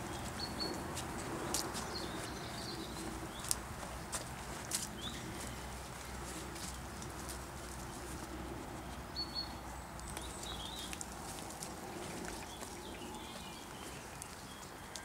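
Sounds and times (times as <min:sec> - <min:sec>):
rustling in undergrowth: 0:00.0 - 0:15.0
steady outdoor hiss: 0:00.0 - 0:15.0
bird chirps: 0:09.1 - 0:11.0.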